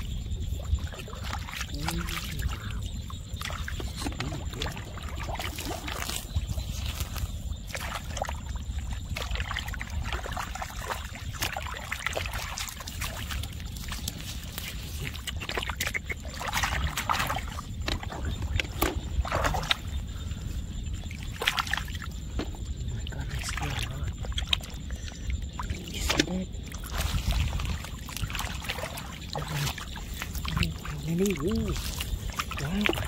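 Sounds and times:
hands splashing in wet mud: 3.4s - 8.4s, 9.0s - 19.9s, 25.6s - 33.0s.

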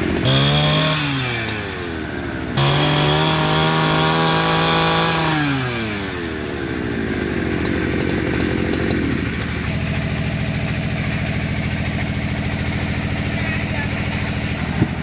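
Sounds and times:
chainsaw winding down to idle: 0.0s - 15.0s.

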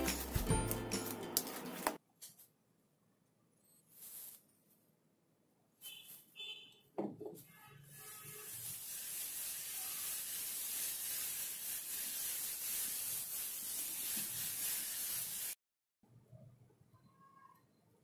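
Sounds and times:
hand rubbing glitter on slime: 3.9s - 4.5s.

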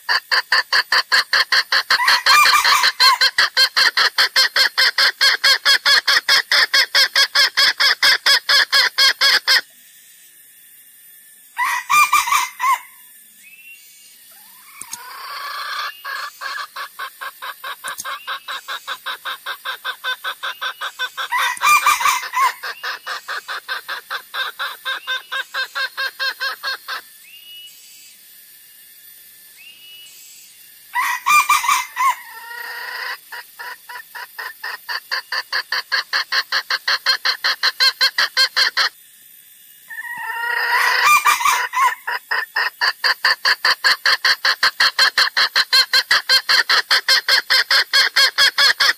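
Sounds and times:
junglefowl clucks: 0.0s - 9.6s, 11.6s - 13.0s, 14.3s - 27.1s, 31.0s - 39.0s, 39.9s - 48.9s
harsh bird calls: 11.6s - 27.8s, 39.9s - 48.9s.

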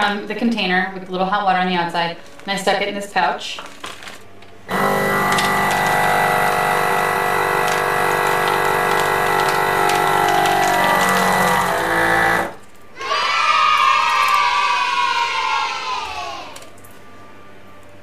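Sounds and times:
vacuum sealer pump running: 4.6s - 12.7s.

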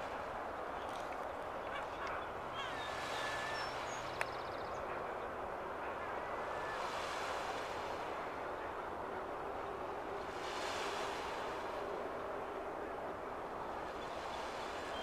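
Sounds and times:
water: 0.0s - 15.0s
wind: 0.0s - 15.0s
bird calls: 1.6s - 5.0s.

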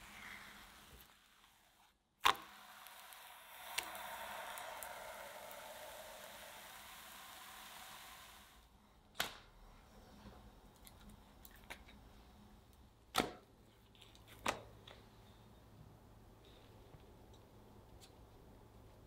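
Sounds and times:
batter sizzling in a pan: 0.0s - 8.7s.

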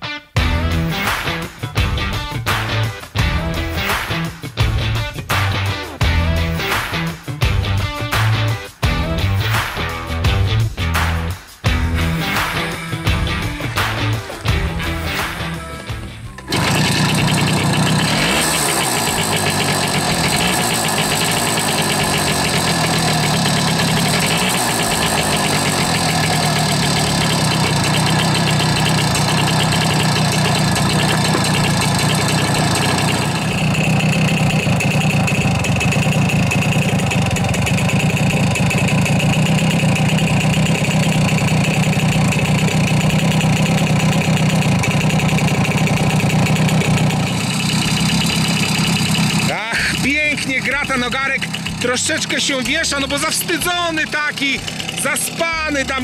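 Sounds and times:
moped engine revving and idling: 11.7s - 56.0s.

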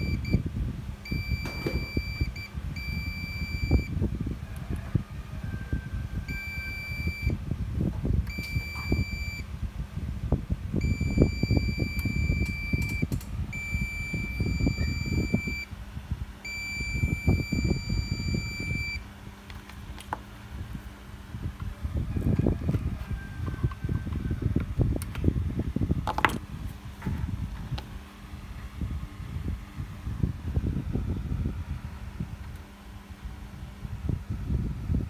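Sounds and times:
multimeter high beep: 0.0s - 0.4s, 1.0s - 4.0s, 6.3s - 7.4s, 8.3s - 9.5s, 10.8s - 15.7s, 16.5s - 19.0s
steady low rumble: 0.0s - 35.0s.

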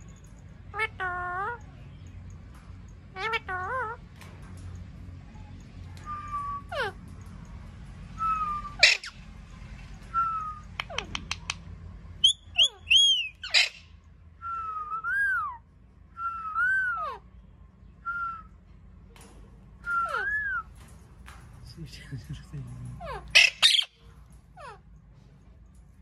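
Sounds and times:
parrot screeches: 8.2s - 9.2s, 12.6s - 13.8s, 19.9s - 20.6s, 23.0s - 24.0s.

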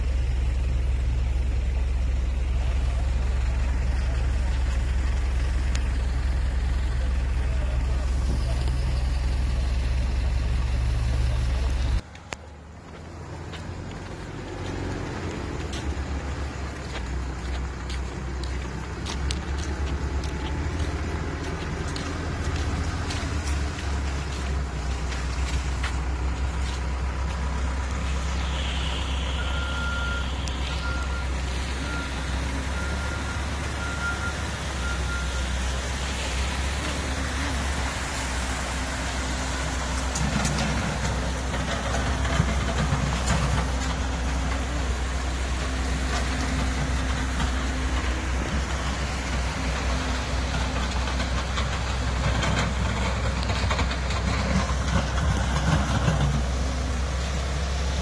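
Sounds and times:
loader diesel engine running: 0.0s - 58.0s
backup alarm beeping: 28.5s - 35.6s.

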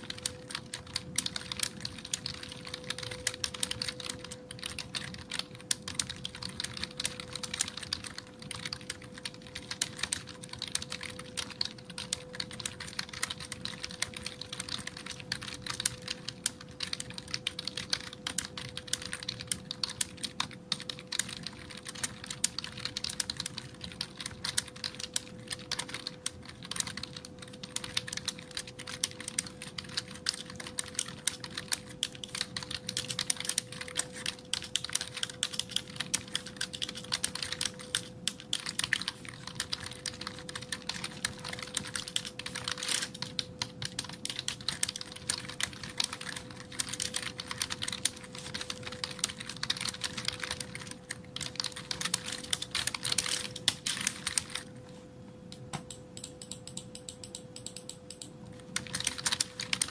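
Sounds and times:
fast typing on keyboard: 0.0s - 54.7s, 56.2s - 59.9s.

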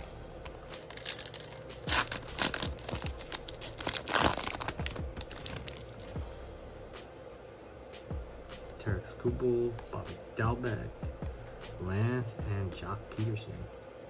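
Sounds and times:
foil wrapper tearing and crinkling: 0.0s - 6.2s.

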